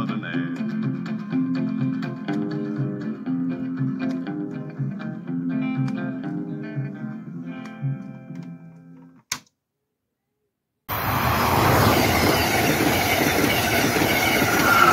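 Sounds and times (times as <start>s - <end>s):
country music from vinyl record: 0.0s - 9.2s
passenger train rushing past: 10.9s - 14.9s.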